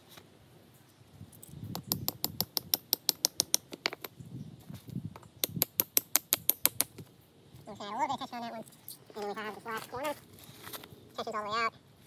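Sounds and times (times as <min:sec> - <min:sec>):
tent stake tapped into rocky ground: 0:01.4 - 0:04.2, 0:05.1 - 0:07.1.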